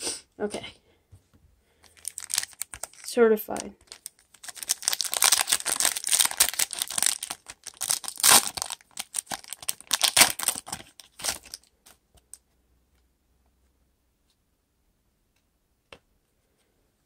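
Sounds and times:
foil wrapper crinkling: 1.8 - 12.0.

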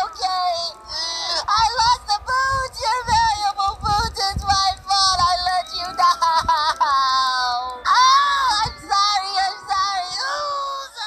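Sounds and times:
high-pitched voice singing: 0.0 - 11.0
music: 0.0 - 11.0.

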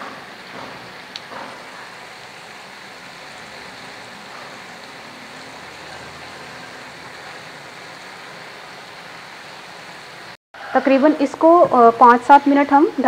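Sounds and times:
chicken sizzling in oil: 0.0 - 10.4.

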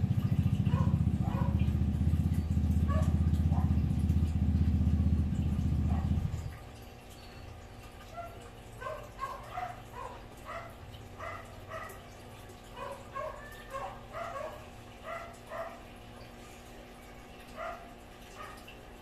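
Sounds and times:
steady low hum: 0.0 - 19.0
dog whining and yipping: 12.8 - 15.8.

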